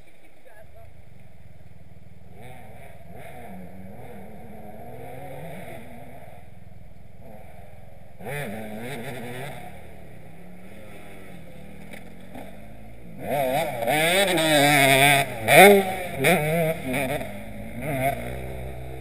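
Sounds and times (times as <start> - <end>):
dirt bike engines revving: 0.0 - 19.0.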